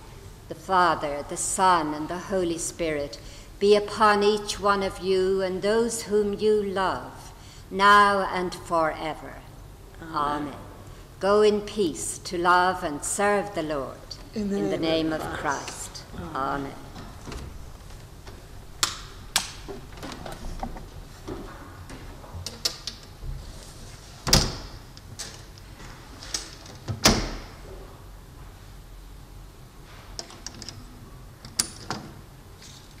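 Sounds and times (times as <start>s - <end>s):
knocks and clicks of people moving: 14.1s - 28.6s.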